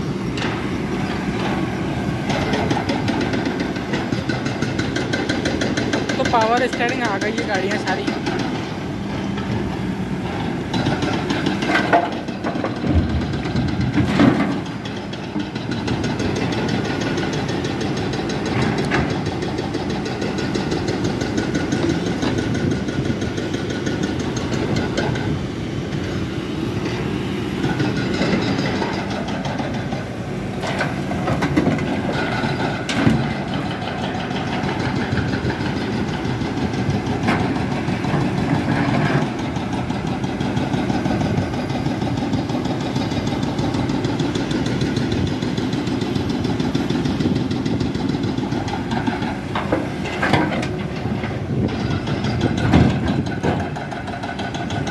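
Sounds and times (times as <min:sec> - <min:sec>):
excavator diesel engine running: 0:00.0 - 0:54.9.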